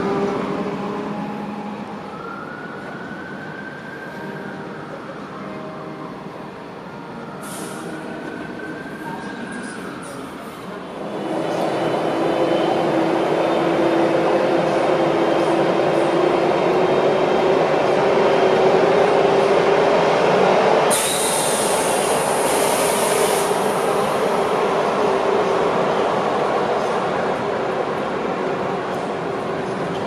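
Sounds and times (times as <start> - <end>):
electric locomotive passing: 0.0 - 30.0
high hiss: 20.9 - 24.2.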